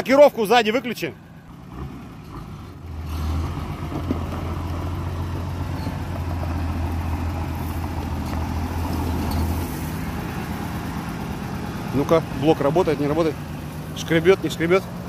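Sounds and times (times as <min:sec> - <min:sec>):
car engine running: 0:00.0 - 0:15.0.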